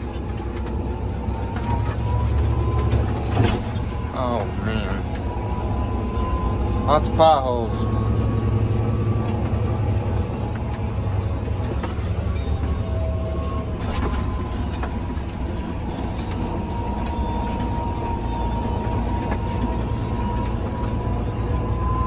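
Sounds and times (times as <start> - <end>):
tractor engine running: 0.0 - 22.0
high whine rising in pitch: 4.0 - 22.0
knocks and rattles: 8.0 - 22.0.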